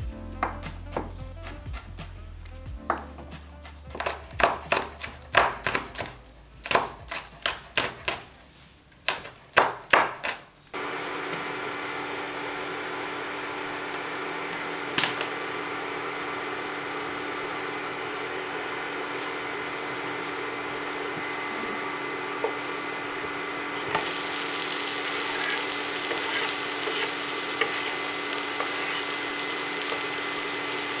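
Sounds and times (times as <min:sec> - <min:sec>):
knife chopping on wooden board: 0:00.4 - 0:02.0, 0:02.9 - 0:08.3, 0:09.0 - 0:10.4
steady hum: 0:10.8 - 0:31.0.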